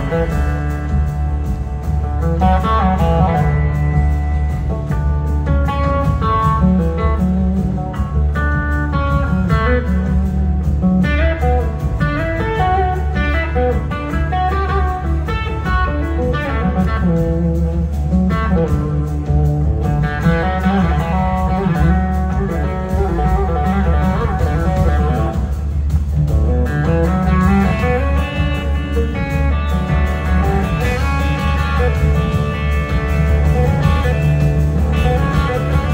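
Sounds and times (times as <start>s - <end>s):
blues rock band playing: 0.0s - 35.9s
electric guitar lead melody: 0.0s - 35.9s.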